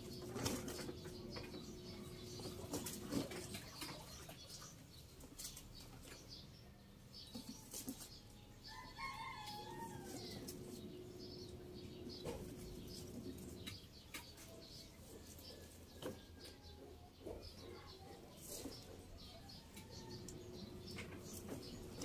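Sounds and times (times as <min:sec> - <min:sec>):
distant rooster crowing: 0:08.6 - 0:11.0, 0:19.2 - 0:21.0.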